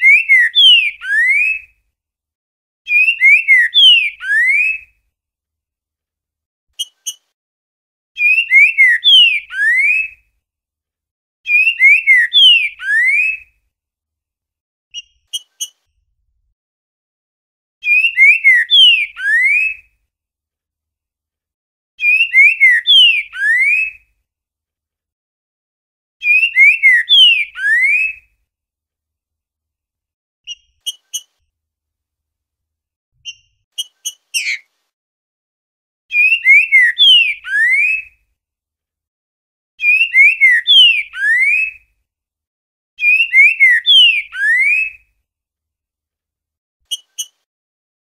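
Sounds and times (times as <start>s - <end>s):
bird singing slurred whistles: 0.0s - 1.6s, 2.9s - 4.9s, 8.2s - 10.2s, 11.5s - 13.5s, 17.8s - 19.8s, 22.0s - 24.0s, 26.2s - 28.2s, 36.1s - 38.1s, 39.8s - 41.8s, 43.0s - 45.0s.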